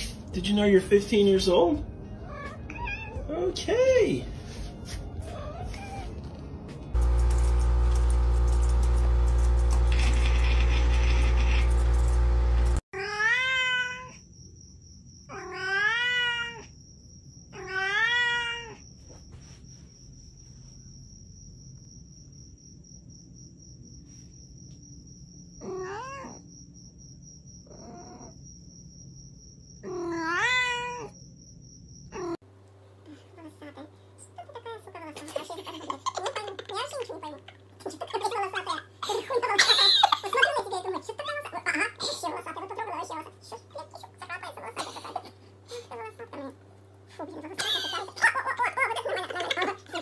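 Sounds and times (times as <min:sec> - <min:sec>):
cat meowing: 0:02.2 - 0:03.3, 0:09.9 - 0:11.9, 0:29.8 - 0:31.1.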